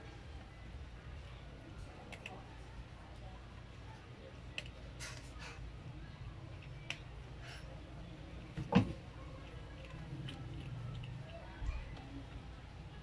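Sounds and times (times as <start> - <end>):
small clicks and crackles: 1.8 - 2.6, 9.0 - 12.5
cat crunching dry kibble: 8.4 - 12.9.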